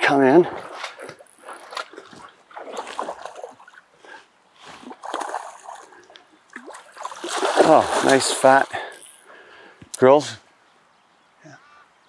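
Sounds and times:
fish splashing at the surface: 4.8s - 9.1s.

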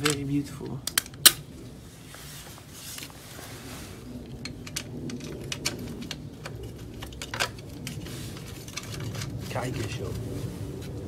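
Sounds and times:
small metal parts clinking: 4.3s - 10.0s.

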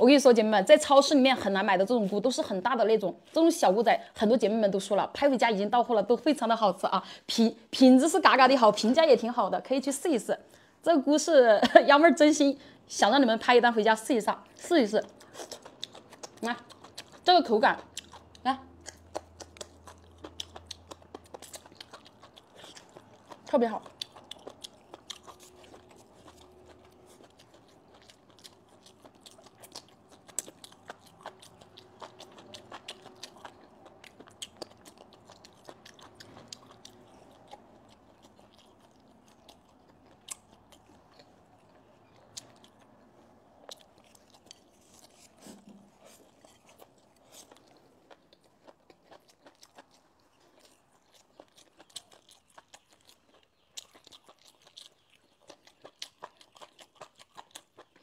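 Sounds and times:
person chewing crunchy food: 14.4s - 58.0s.

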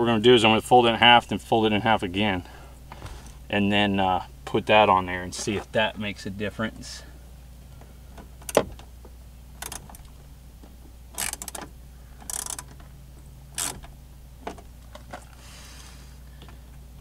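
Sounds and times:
socket wrench clicking: 11.2s - 12.7s.

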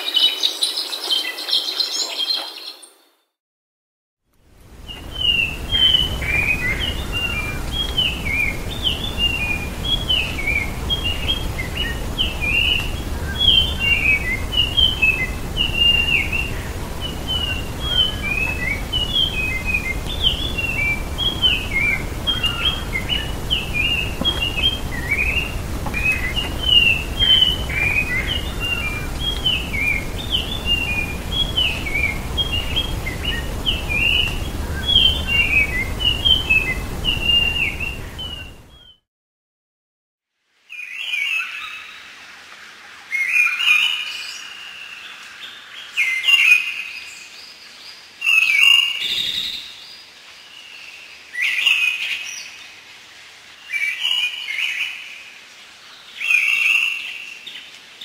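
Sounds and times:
thrush singing whistled notes: 4.8s - 39.0s.

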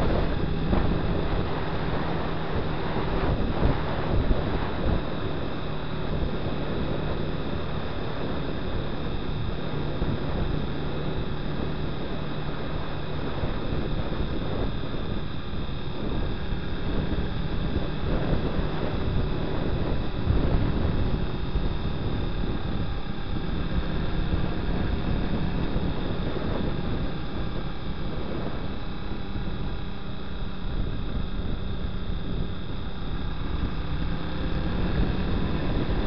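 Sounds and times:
motorcycle engine cruising: 0.0s - 36.0s
wind over microphone: 0.0s - 36.0s.

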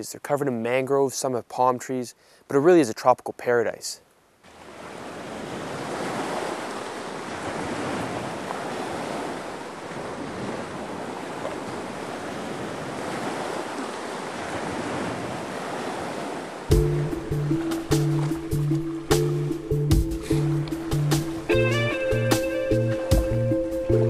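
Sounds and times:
wind: 0.0s - 24.0s
small waves washing onto beach: 4.4s - 21.7s.

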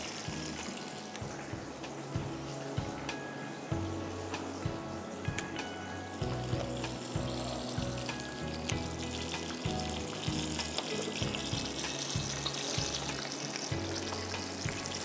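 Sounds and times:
background music with bass: 0.0s - 15.0s
chicken deep-frying in oil: 0.0s - 15.0s.

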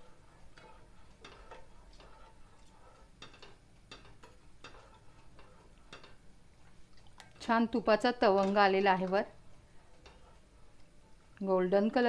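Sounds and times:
spoon scraping metal pot: 0.0s - 6.3s.

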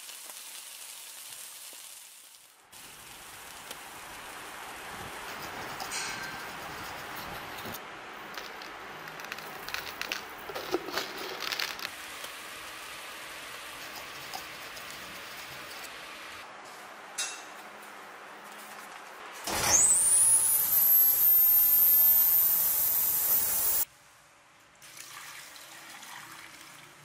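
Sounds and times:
hiss and crackle: 0.0s - 16.5s, 18.5s - 23.9s
metal rod clinking in crucible: 5.9s - 6.4s.

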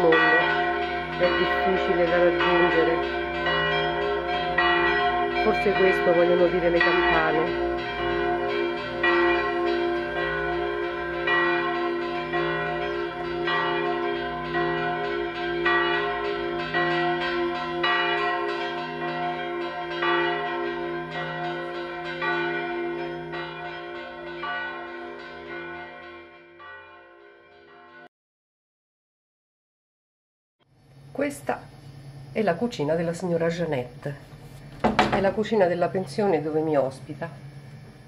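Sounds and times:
church bells ringing: 0.0s - 28.1s.

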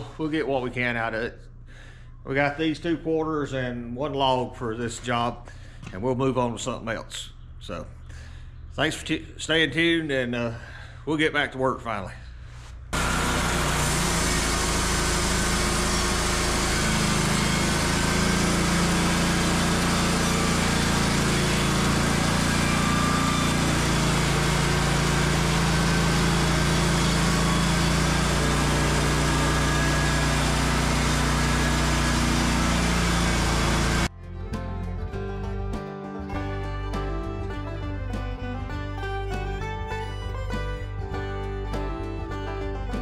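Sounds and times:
sawmill engine under load: 12.9s - 34.1s
band blade sawing wood: 13.0s - 34.1s.

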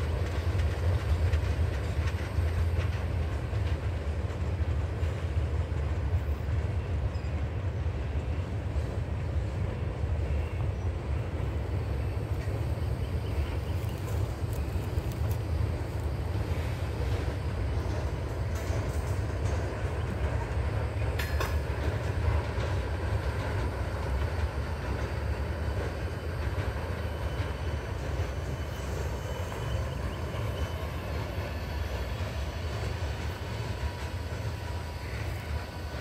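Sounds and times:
train wheels rumbling on rails: 0.0s - 36.0s
faint wheel squeal: 27.0s - 32.7s.

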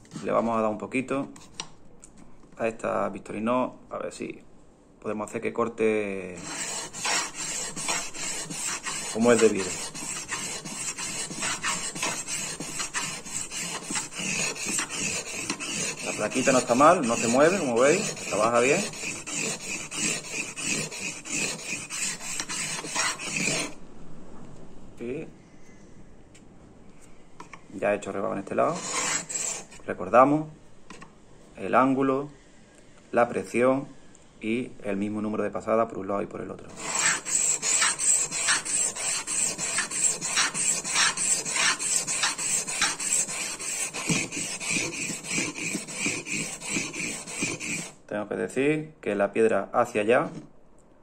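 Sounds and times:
knife rasping on sharpening plate: 6.4s - 23.8s, 28.7s - 29.8s, 36.7s - 48.0s.

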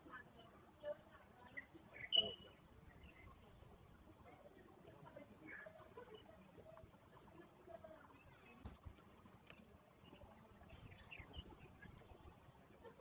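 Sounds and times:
faint high-pitched whine: 0.0s - 13.0s.

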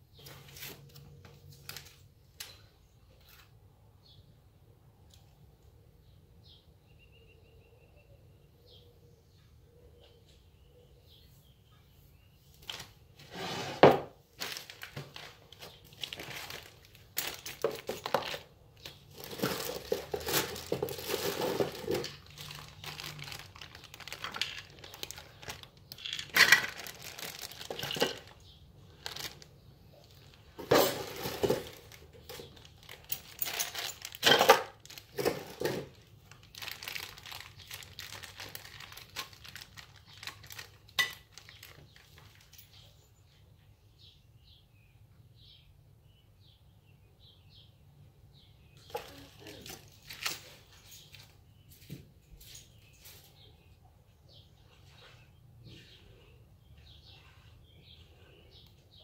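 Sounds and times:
plastic and paper crinkling: 0.2s - 2.5s, 12.6s - 13.4s, 14.3s - 42.8s, 48.9s - 53.2s.

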